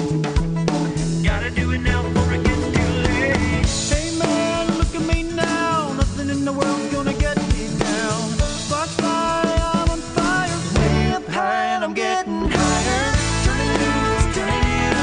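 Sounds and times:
drum kit beat: 0:00.0 - 0:11.3, 0:12.4 - 0:15.0
country-rock band playing: 0:00.0 - 0:15.0.

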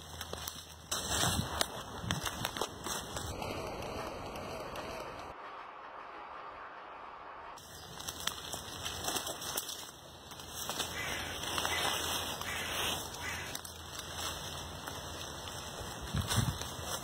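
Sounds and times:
bird calls: 0:10.7 - 0:13.6.

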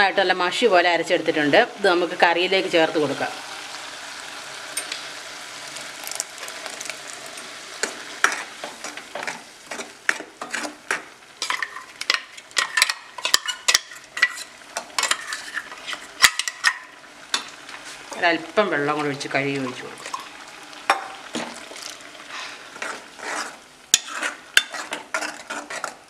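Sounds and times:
low steady sizzle: 0:00.0 - 0:26.0
utensils scraping a metal pan: 0:07.8 - 0:18.2, 0:22.3 - 0:26.0.

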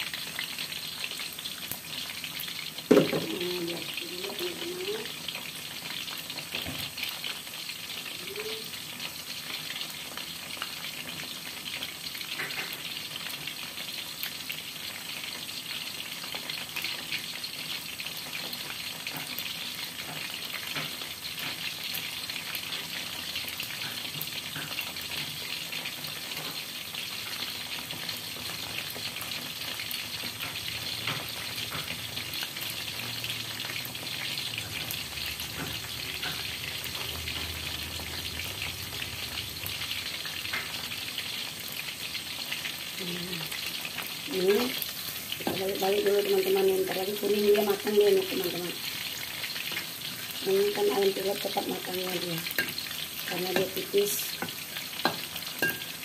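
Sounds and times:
chicken deep-frying in oil: 0:00.0 - 0:56.0.

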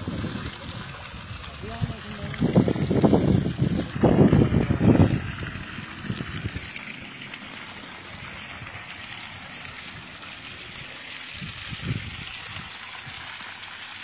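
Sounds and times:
water running and trickling: 0:00.0 - 0:14.0.

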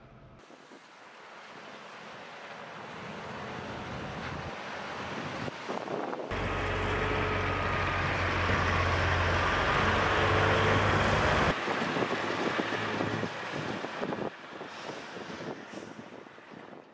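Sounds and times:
distant truck engine: 0:01.0 - 0:05.7, 0:06.3 - 0:16.6
diesel truck engine running: 0:06.3 - 0:16.6.

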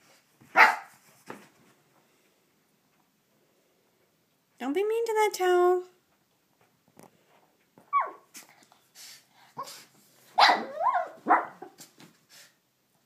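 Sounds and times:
small dog barking: 0:00.5 - 0:01.0, 0:07.9 - 0:08.3, 0:10.4 - 0:11.8.

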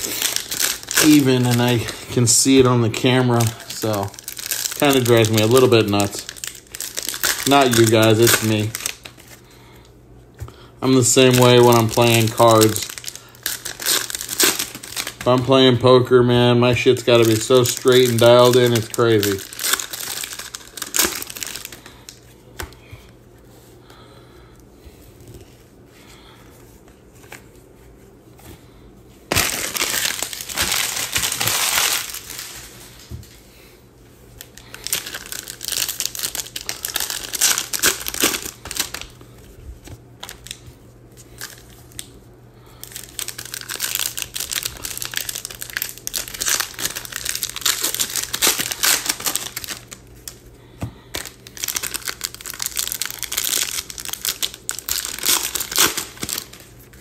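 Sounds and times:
plastic wrapping crinkling: 0:00.0 - 0:09.4, 0:10.8 - 0:15.6, 0:16.8 - 0:22.2, 0:29.3 - 0:33.4, 0:34.4 - 0:40.6, 0:41.2 - 0:50.5, 0:51.1 - 0:57.0.

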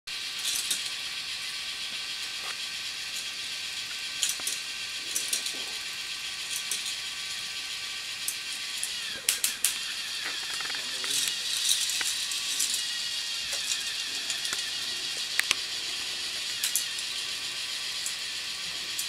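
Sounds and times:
ratchet-like clicks: 0:00.1 - 0:19.0
toy motor whining: 0:00.1 - 0:19.0
sharp plastic clacks: 0:09.3 - 0:12.2, 0:15.3 - 0:15.6.

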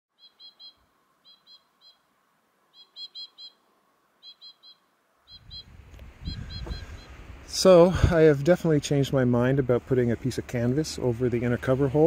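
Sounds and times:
small bird chirping: 0:00.1 - 0:02.1, 0:02.7 - 0:03.6, 0:04.2 - 0:07.2
low rumble: 0:05.5 - 0:10.0.

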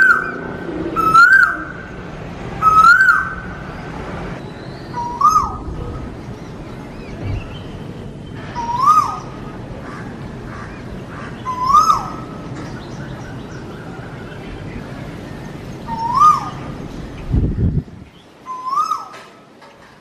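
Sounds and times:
low background noise: 0:00.0 - 0:20.0
bird whistled call: 0:02.6 - 0:03.4, 0:08.5 - 0:09.3, 0:11.5 - 0:12.2, 0:15.9 - 0:16.6, 0:18.5 - 0:19.2.

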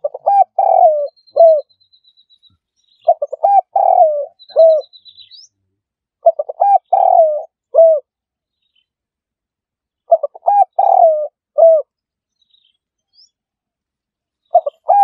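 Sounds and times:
dove cooing: 0:00.0 - 0:01.7, 0:03.0 - 0:05.0, 0:06.2 - 0:08.1, 0:10.1 - 0:11.9, 0:14.5 - 0:15.0.

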